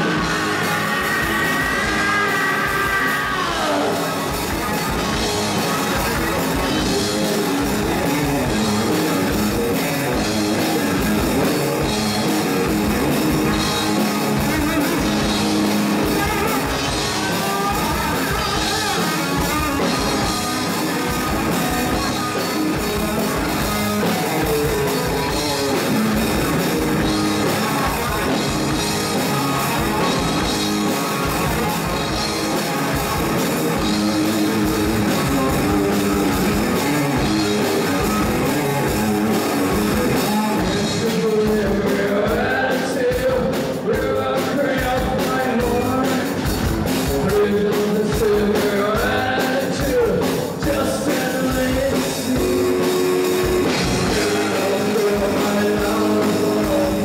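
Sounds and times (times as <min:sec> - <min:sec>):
person singing: 0:00.0 - 0:12.2, 0:13.6 - 0:57.0
drum kit: 0:00.0 - 0:57.0
electric guitars: 0:00.0 - 0:57.0.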